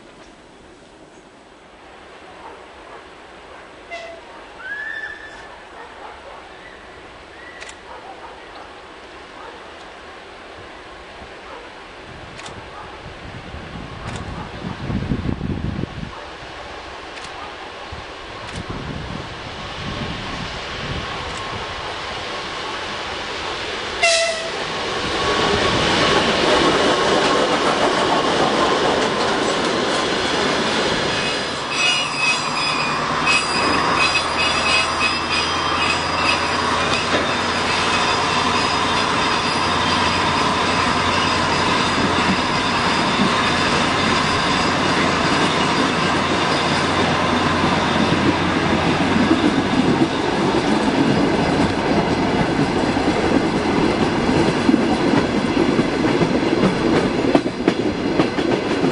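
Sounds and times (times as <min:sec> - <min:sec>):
train wheels rolling on rails: 0:07.0 - 0:58.9
high wheel squeal: 0:31.2 - 0:50.5.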